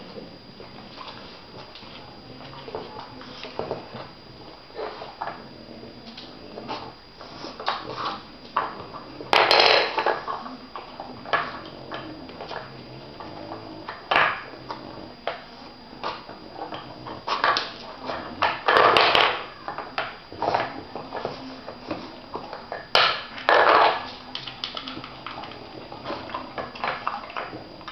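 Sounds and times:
plastic cups knocking and rattling: 0:09.3 - 0:10.3.

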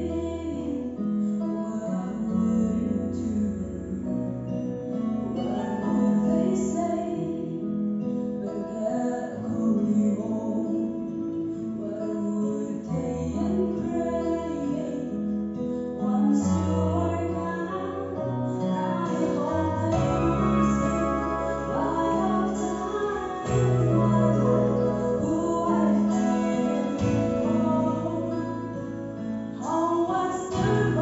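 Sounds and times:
woman singing into microphone: 0:00.0 - 0:04.6, 0:05.4 - 0:31.0
instrumental accompaniment: 0:19.1 - 0:29.6.

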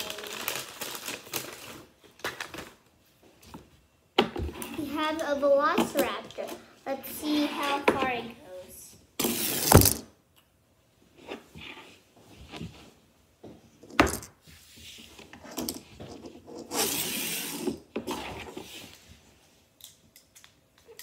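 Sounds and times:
plastic toys handled on table: 0:13.8 - 0:19.0.

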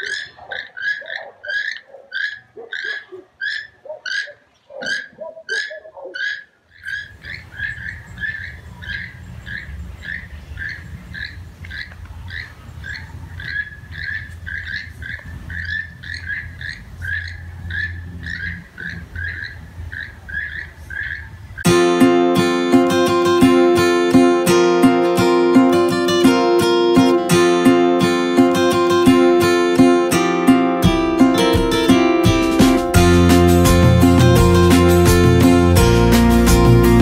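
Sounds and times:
toucans croaking calls: 0:00.0 - 0:21.7.

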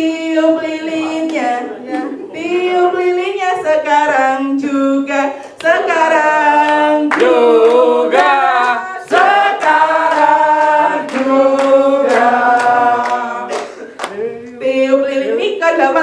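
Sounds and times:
people singing: 0:00.0 - 0:16.0
person singing into a microphone: 0:00.0 - 0:16.0
hand claps: 0:06.6 - 0:14.2.

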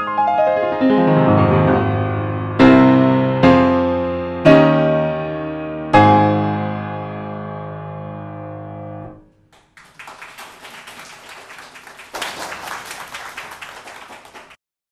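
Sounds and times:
audience applause: 0:09.6 - 0:14.6.

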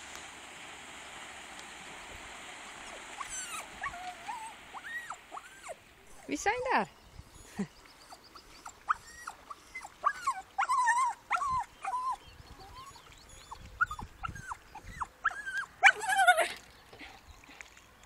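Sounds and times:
small dog whining: 0:03.2 - 0:06.3, 0:07.4 - 0:16.6.

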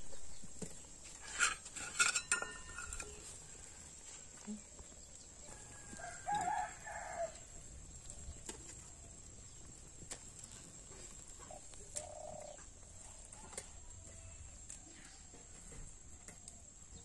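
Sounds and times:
rooster crowing: 0:05.4 - 0:07.5.

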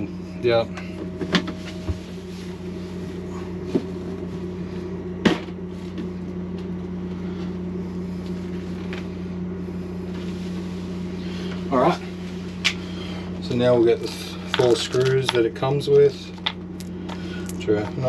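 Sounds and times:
low hum: 0:00.0 - 0:18.0.

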